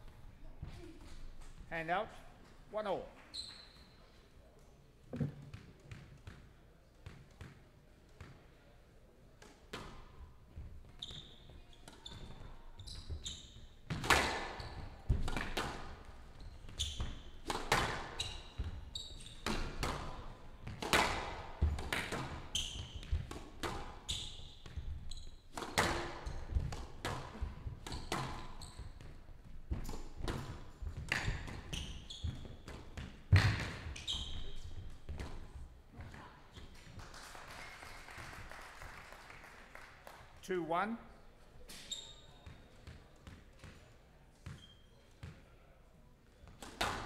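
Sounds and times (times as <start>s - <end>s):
court shoes squeaking: 3.3s - 4.2s, 10.6s - 35.5s, 41.6s - 45.5s
ball hitting walls: 5.1s - 6.0s
racquet hitting squash ball: 13.9s - 16.1s, 16.7s - 34.5s, 46.5s - 47.0s.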